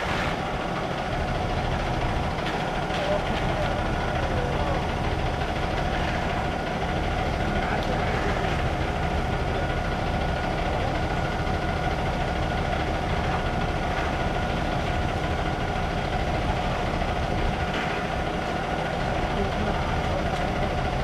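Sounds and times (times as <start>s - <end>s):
concrete mixer truck engine: 0.0s - 21.0s.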